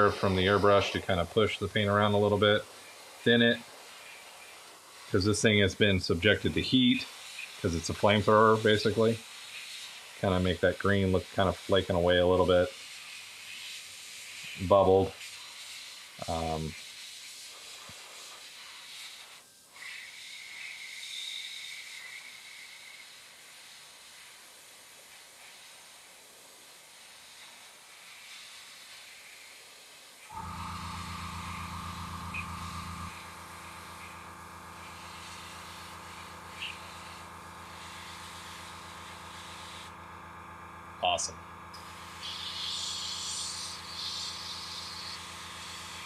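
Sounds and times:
small electric motor humming: 0:00.0 - 0:24.4, 0:27.6 - 0:46.0
airbrush hissing: 0:00.0 - 0:46.0
thin high whistle: 0:31.9 - 0:33.1.

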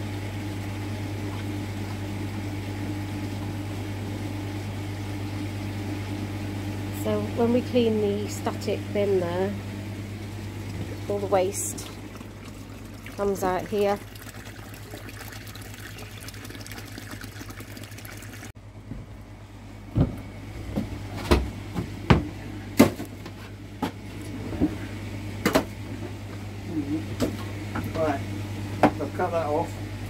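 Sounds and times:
steady low hum: 0:00.0 - 0:30.0
water running out of a pipe: 0:10.4 - 0:18.6.

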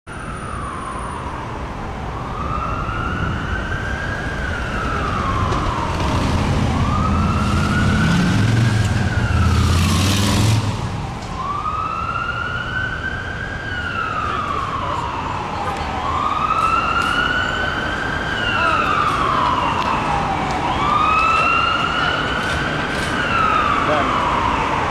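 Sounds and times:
emergency vehicle siren wailing: 0:00.1 - 0:24.9
street traffic rumbling: 0:00.1 - 0:24.9.

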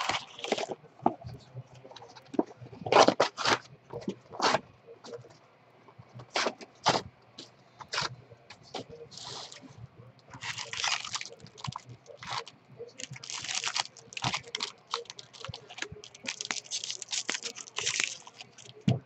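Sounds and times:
plastic foil wrapper crinkling: 0:00.0 - 0:00.8, 0:10.3 - 0:19.0.

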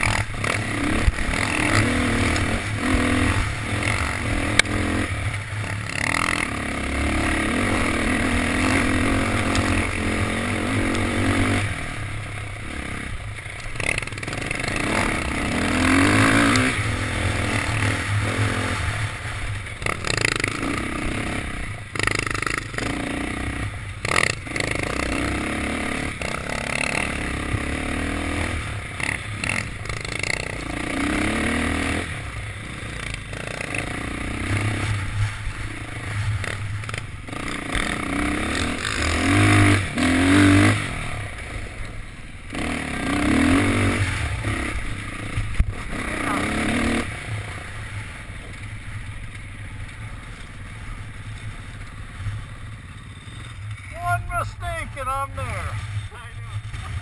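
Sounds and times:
dirt bike engine: 0:00.0 - 0:57.0
bike scraping and rattling: 0:12.9 - 0:23.4, 0:32.7 - 0:39.4, 0:47.3 - 0:53.9.

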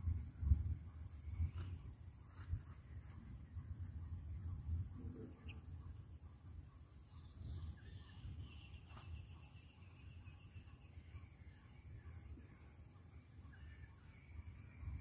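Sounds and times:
high-pitched insect drone: 0:00.0 - 0:15.0.

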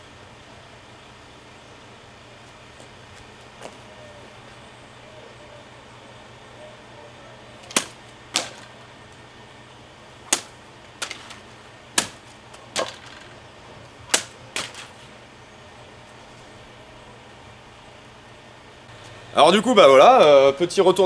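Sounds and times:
sword slicing straw target: 0:10.3 - 0:11.3.

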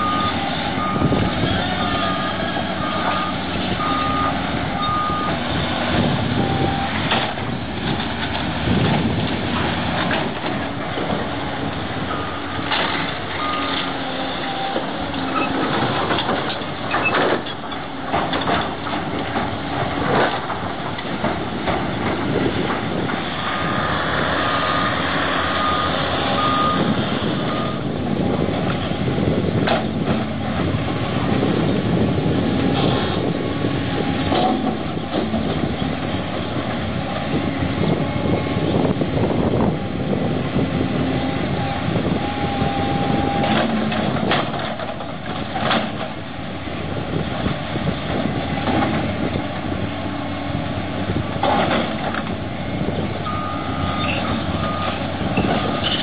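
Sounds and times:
reversing alarm beeps: 0:00.0 - 0:05.4, 0:13.4 - 0:13.8, 0:25.5 - 0:27.8, 0:53.2 - 0:55.0
heavy diesel machines running: 0:00.0 - 0:56.0.

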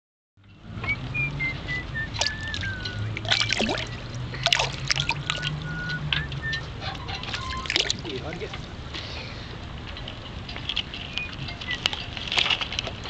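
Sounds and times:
water trickling: 0:01.7 - 0:06.6, 0:07.2 - 0:08.5
fish splashing in water: 0:02.2 - 0:05.6, 0:07.5 - 0:08.0.

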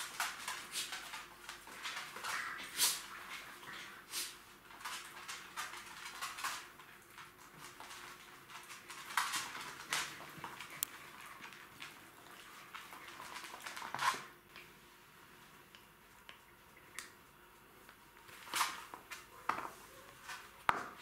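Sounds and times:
puppy claws clicking on hard floor: 0:00.0 - 0:03.7, 0:04.7 - 0:14.3.

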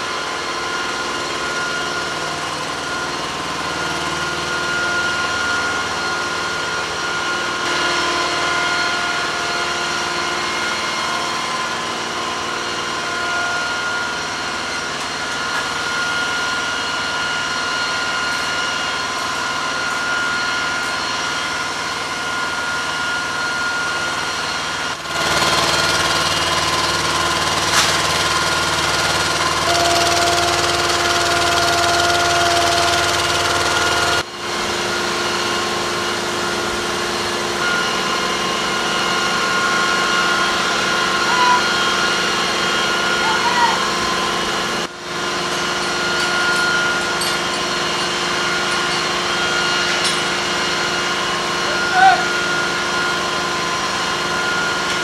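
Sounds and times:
lift truck engine running: 0:24.8 - 0:34.3.

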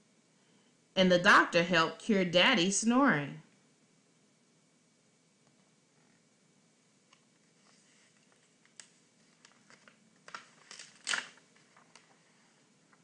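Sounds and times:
paper rustle: 0:07.4 - 0:13.0
book page turning: 0:07.5 - 0:13.0.

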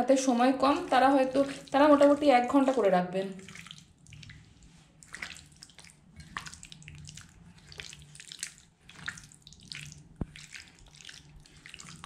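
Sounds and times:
hand squelching meat in marinade: 0:00.6 - 0:12.0.

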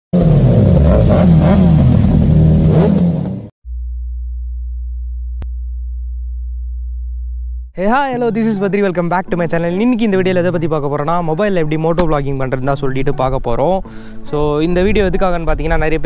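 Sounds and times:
low sine-wave hum: 0:03.6 - 0:07.8
sharp click: 0:12.0 - 0:12.2.

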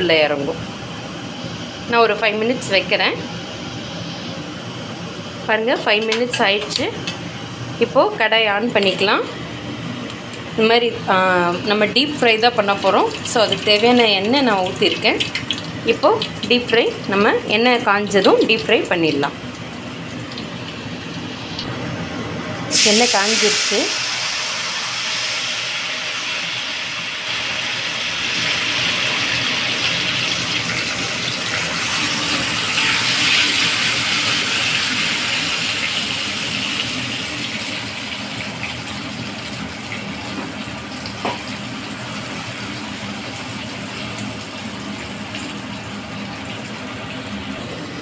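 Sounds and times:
fries sizzling in hot oil: 0:10.6 - 0:21.9, 0:22.7 - 0:48.0.

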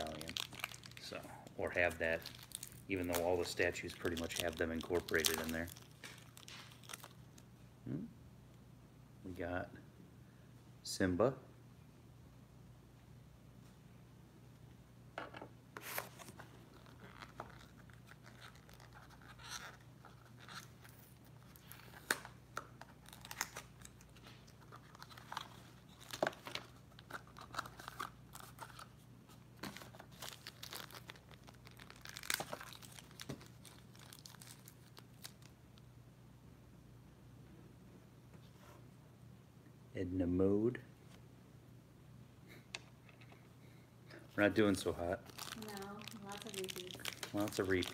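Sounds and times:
packaging tearing and crinkling: 0:00.0 - 0:07.4, 0:15.8 - 0:28.9, 0:29.6 - 0:35.5, 0:45.2 - 0:47.9.

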